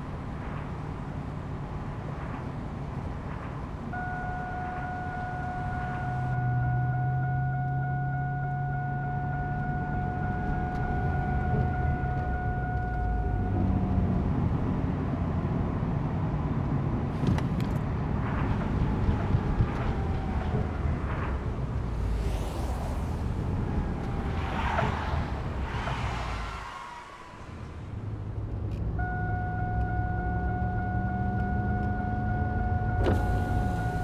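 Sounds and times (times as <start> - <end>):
car engine and road noise: 0.0 - 34.0
high warning tone: 3.9 - 14.7, 28.9 - 34.0.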